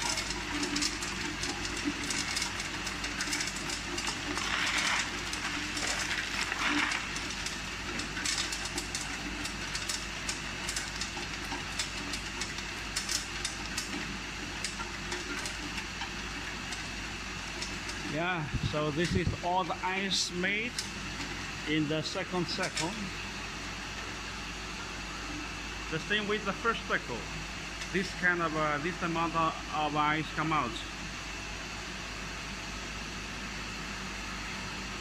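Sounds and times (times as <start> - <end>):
ice clattering into bucket: 0.0 - 18.2
ice machine running: 0.0 - 35.0.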